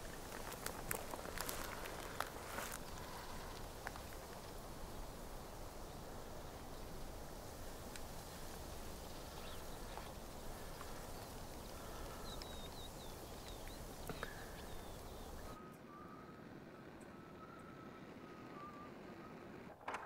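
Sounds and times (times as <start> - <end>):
faint steady hum: 0.0 - 19.7
wind: 0.0 - 20.0
faint clicks: 0.1 - 5.8, 6.4 - 15.6
small bird chirping: 0.1 - 19.5.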